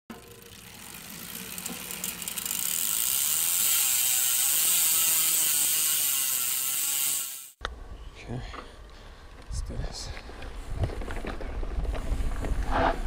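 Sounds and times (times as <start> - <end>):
bicycle freehub ratcheting: 0.1 - 7.6.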